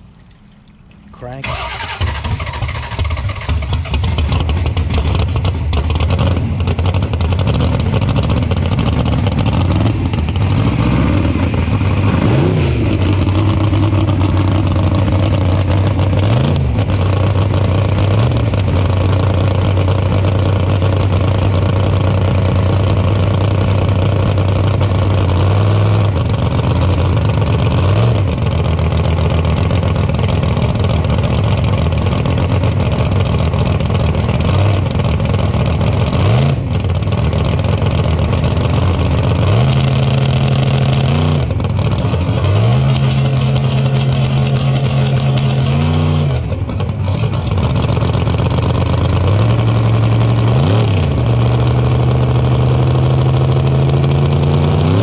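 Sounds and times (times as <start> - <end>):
drag car engine revving: 1.2 - 55.0.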